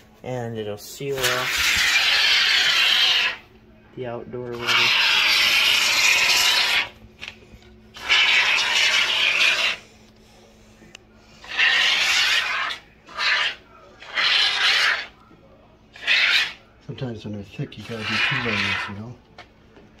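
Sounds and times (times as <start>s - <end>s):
spray foam can hissing: 8.0s - 9.8s.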